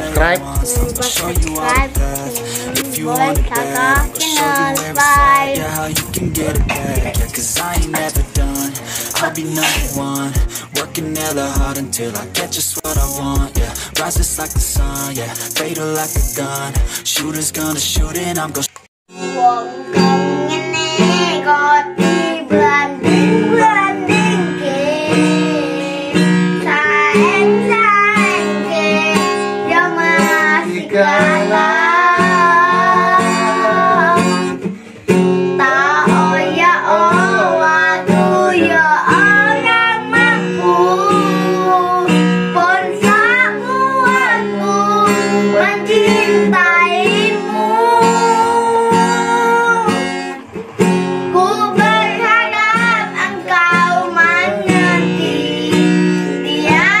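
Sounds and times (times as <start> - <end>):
child singing: 0.0 - 10.3, 19.2 - 34.6, 35.6 - 50.2, 51.3 - 57.0
acoustic guitar: 0.0 - 57.0.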